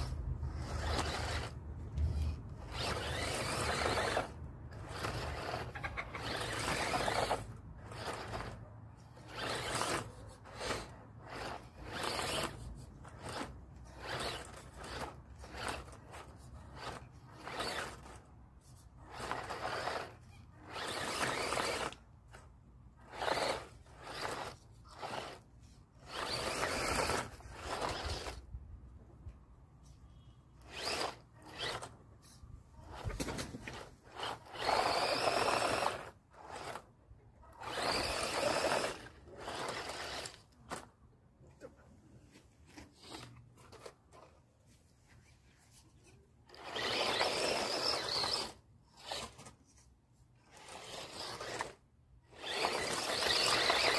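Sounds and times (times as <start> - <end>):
tyres scrabbling in loose dirt: 0.0 - 18.3, 19.0 - 28.5, 30.6 - 36.9, 37.5 - 40.9, 46.5 - 49.6, 50.4 - 53.9
electric toy motor whining: 0.0 - 22.4, 23.0 - 28.5, 30.6 - 36.9, 37.5 - 40.9, 43.0 - 43.9, 46.5 - 49.6, 50.4 - 53.9.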